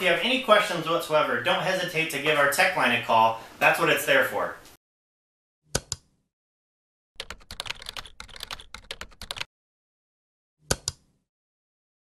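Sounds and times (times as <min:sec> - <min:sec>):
typing on keyboard: 0:07.2 - 0:09.5.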